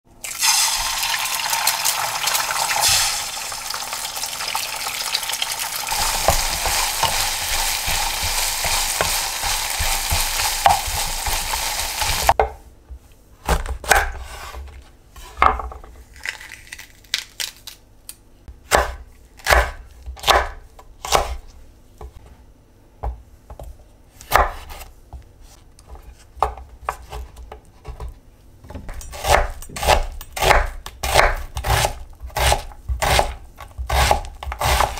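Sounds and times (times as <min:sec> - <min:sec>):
egg sizzling in oil: 0:00.2 - 0:12.4
knife chopping on wooden board: 0:05.9 - 0:12.6, 0:13.4 - 0:14.6, 0:18.6 - 0:21.4, 0:23.0 - 0:24.9, 0:28.8 - 0:34.9.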